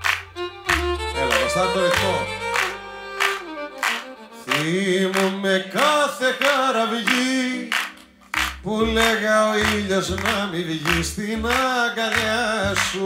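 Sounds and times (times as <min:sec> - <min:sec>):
bass: 0:00.0 - 0:04.9, 0:08.0 - 0:13.0
bending lead melody: 0:00.0 - 0:04.9.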